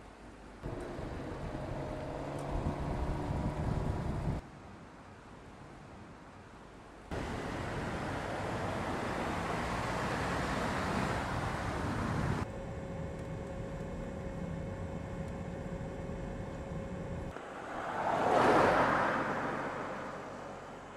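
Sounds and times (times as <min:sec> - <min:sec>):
tyre and wind noise: 0:00.6 - 0:04.4, 0:10.7 - 0:12.5
faint steady hum: 0:12.4 - 0:17.6.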